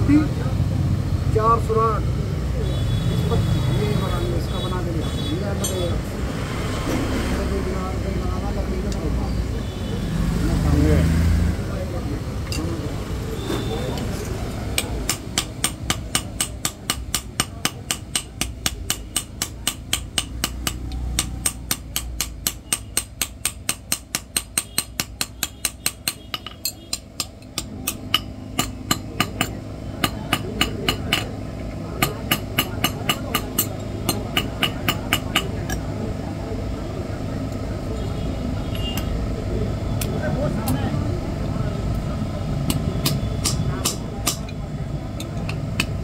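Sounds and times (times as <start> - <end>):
hammer striking iron on anvil: 5.6 - 6.0, 14.7 - 31.4, 32.0 - 35.8, 42.7 - 44.6, 45.2 - 46.0.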